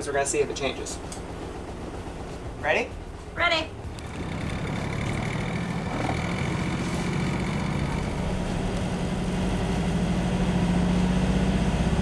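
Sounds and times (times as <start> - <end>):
marine diesel engine revving up: 3.8 - 12.0.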